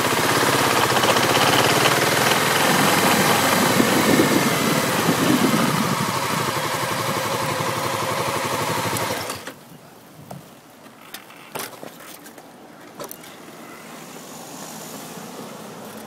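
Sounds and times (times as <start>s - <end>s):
motorcycle engine idling: 0.0s - 9.3s.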